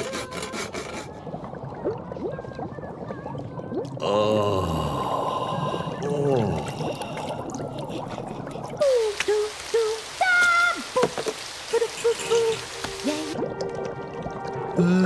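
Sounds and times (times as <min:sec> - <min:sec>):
gloopy plops and drips: 0:01.0 - 0:15.0
running water hiss: 0:04.7 - 0:15.0.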